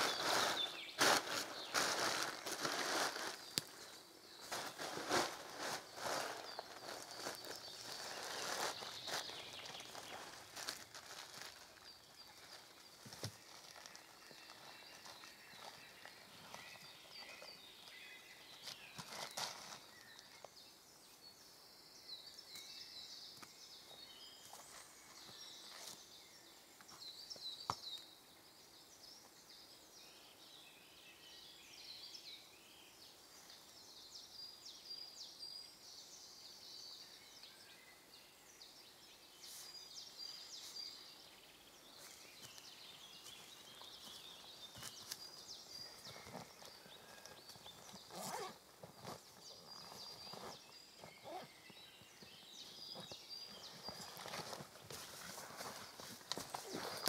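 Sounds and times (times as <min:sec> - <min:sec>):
birds chirping and trilling: 0:00.0 - 0:57.0.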